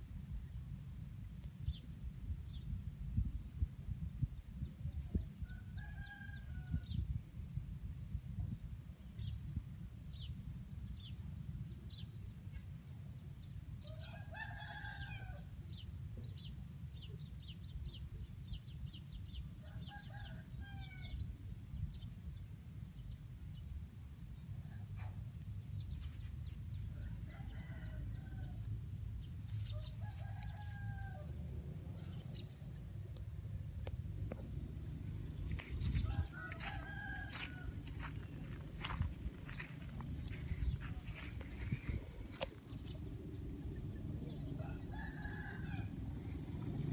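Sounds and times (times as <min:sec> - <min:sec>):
wind rumble on microphone: 0:00.0 - 0:12.0, 0:17.4 - 0:46.9.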